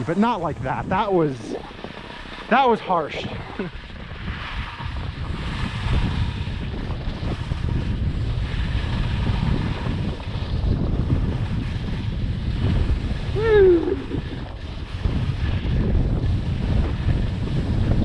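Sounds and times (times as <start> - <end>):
wind buffeting microphone: 0.0 - 18.0
person shouting: 13.4 - 14.3.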